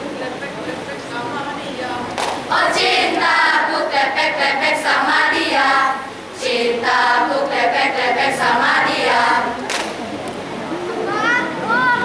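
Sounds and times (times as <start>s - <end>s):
students reciting in unison: 2.3s - 9.7s.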